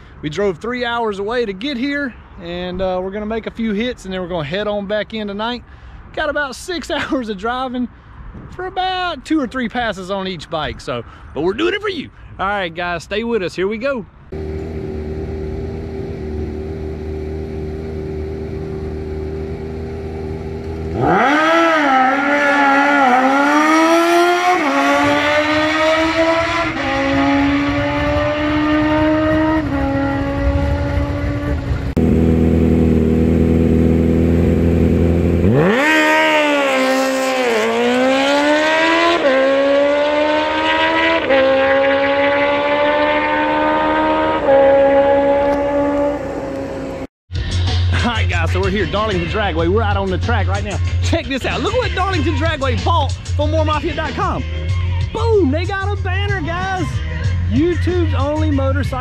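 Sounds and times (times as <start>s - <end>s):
motorcycle engine revving: 14.3s - 47.1s.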